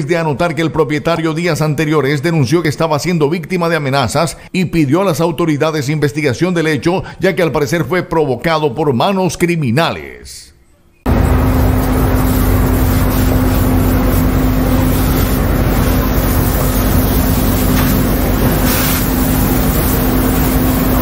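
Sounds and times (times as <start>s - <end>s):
fire engine drone: 11.1s - 21.0s
hose water rushing: 11.1s - 21.0s
low hum: 11.1s - 21.0s
brief hiss: 16.6s - 19.4s.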